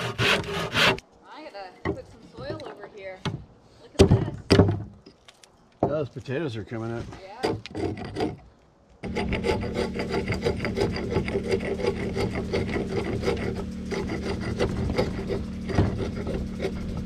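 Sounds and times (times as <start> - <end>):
hatchet scraping wood: 0.0 - 1.1, 6.9 - 17.0.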